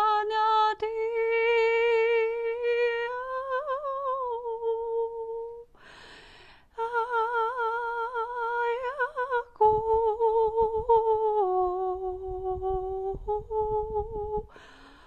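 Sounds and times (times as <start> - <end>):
breath in: 5.8 - 6.7, 14.5 - 15.0.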